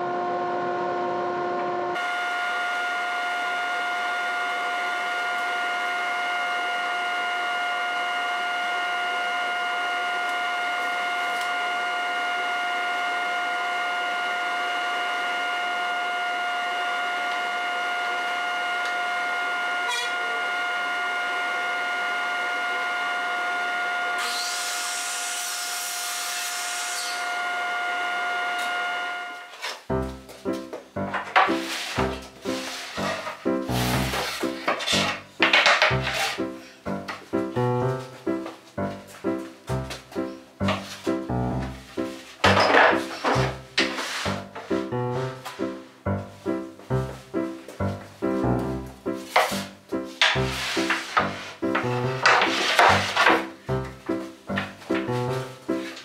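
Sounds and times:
dust collector whine: 0.0 - 30.2, 31.2 - 36.6, 39.8 - 56.0
miter saw cutting board: 1.6 - 29.9, 31.2 - 36.7, 42.0 - 45.4, 49.2 - 53.8.

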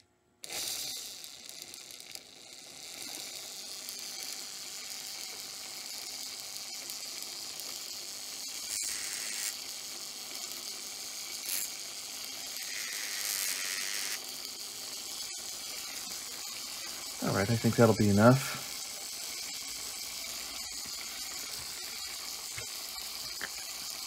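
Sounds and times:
steady high hiss: 12.3 - 24.0.

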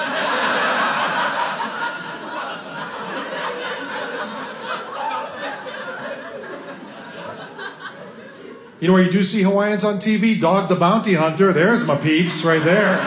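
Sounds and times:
audience laughing: 0.0 - 8.8, 11.4 - 13.0.

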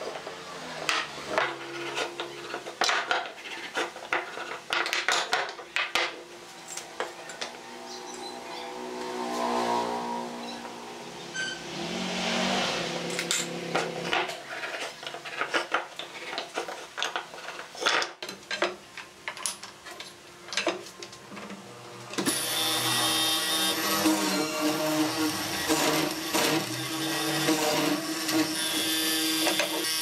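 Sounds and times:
marking tools scratching wood: 1.3 - 4.8, 22.3 - 30.0
mortiser motor running: 22.2 - 30.0.

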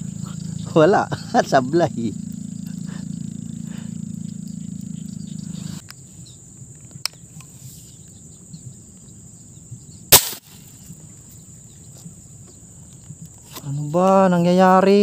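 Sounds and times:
air rifle shot: 10.1 - 10.7.

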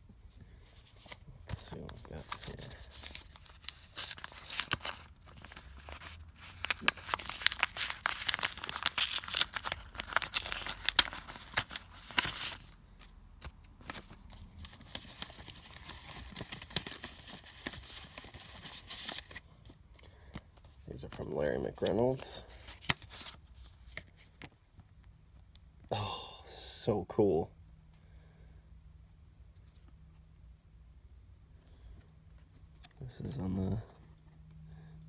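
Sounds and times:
paper envelope tearing: 1.7 - 12.8.

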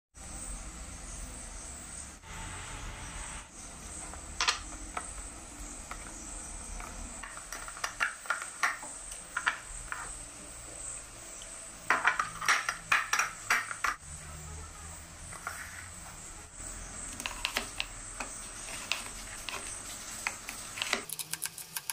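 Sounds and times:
dough scraping in metal bowl: 15.2 - 21.9.

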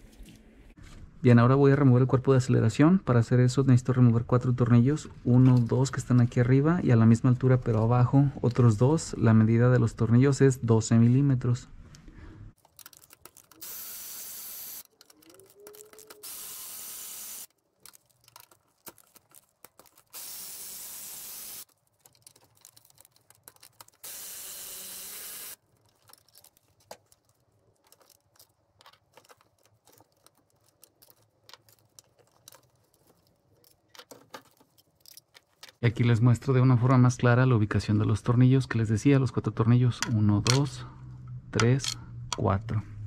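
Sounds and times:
electric ratchet spinning: 13.5 - 15.2, 15.8 - 17.5, 20.1 - 21.7, 24.0 - 25.6.

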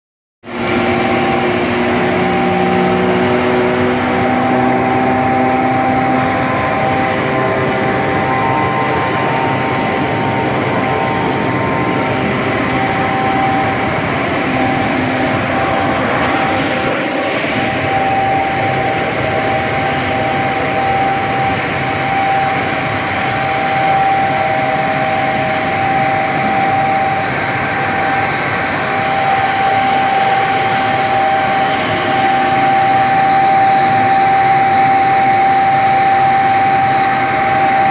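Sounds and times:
constant machine whine: 0.4 - 37.9
loud machinery noise: 0.4 - 37.9.

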